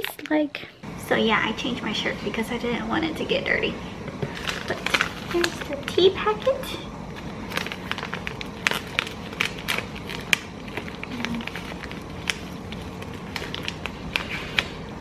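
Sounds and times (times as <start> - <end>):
plastic sachet crinkling: 4.3 - 6.1, 7.1 - 15.0.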